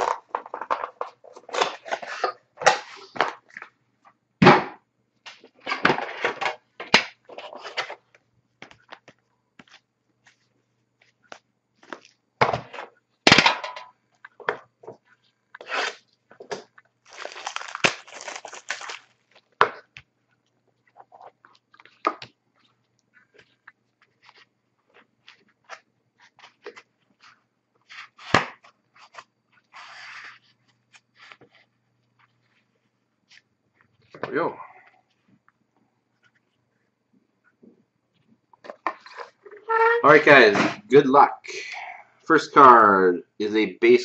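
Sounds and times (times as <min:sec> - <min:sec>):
plastic wrapping crinkling: 0:15.0 - 0:34.2.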